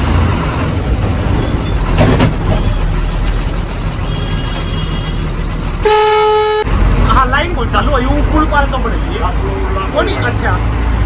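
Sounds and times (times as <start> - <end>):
bus engine and road rumble: 0.0 - 11.0
bus horn blast: 4.0 - 6.7.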